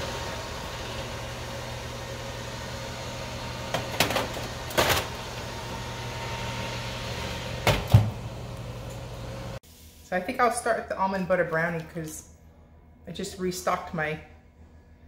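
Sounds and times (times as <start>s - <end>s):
air fryer fan humming: 0.0s - 9.6s.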